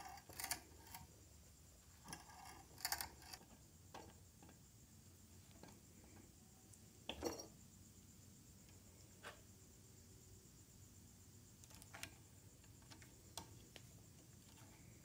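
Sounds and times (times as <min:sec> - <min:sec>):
faint metal clicks and taps: 0:11.6 - 0:14.7.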